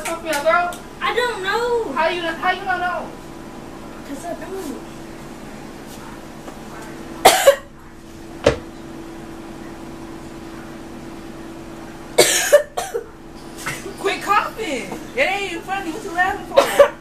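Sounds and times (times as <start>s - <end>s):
steady low hum: 0.0s - 17.0s
person fake-coughing: 7.2s - 7.7s, 12.2s - 13.1s, 16.5s - 17.0s.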